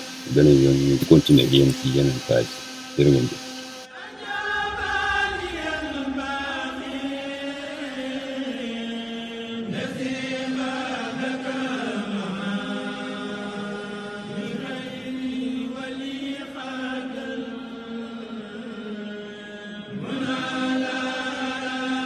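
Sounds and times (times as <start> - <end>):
person chanting: 0.0 - 3.4.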